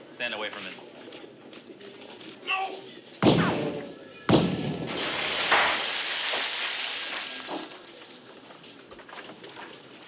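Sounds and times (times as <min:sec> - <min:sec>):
loud gunshot-like bang: 0:03.2 - 0:05.8.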